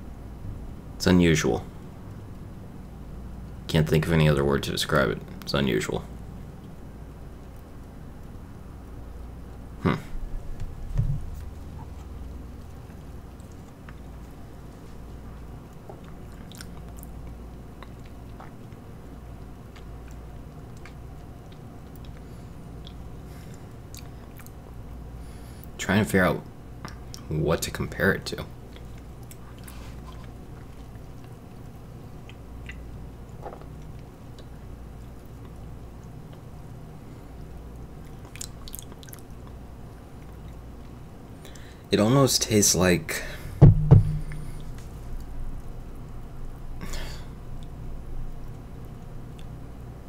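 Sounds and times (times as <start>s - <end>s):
low steady hum: 0.0s - 50.0s
mouth clicks and lip smacks: 15.7s - 18.8s, 19.7s - 24.6s, 28.7s - 36.5s, 38.0s - 39.6s
low hum: 43.5s - 46.8s.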